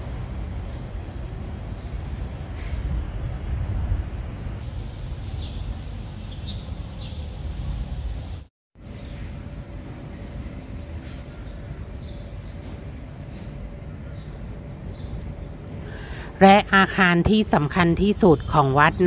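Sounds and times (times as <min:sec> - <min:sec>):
small birds chirping: 0:03.6 - 0:08.2, 0:10.6 - 0:15.3.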